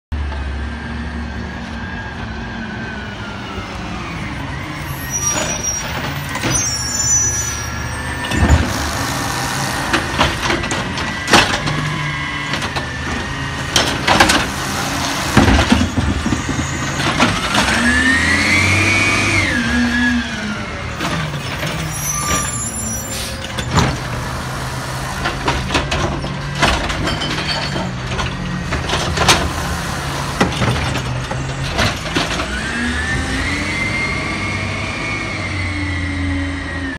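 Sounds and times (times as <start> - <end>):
truck engine revving: 4.4 - 27.0, 27.9 - 36.8
air brakes hissing: 22.1 - 23.6.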